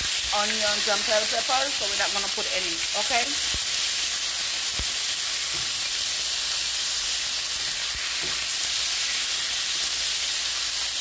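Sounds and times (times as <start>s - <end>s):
chicken sizzling in hot oil: 0.0s - 11.0s.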